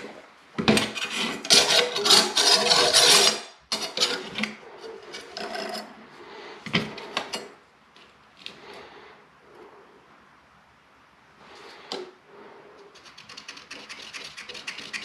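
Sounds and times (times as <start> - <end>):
metal scraping on tiled wall: 0.0 - 7.6, 12.9 - 15.0.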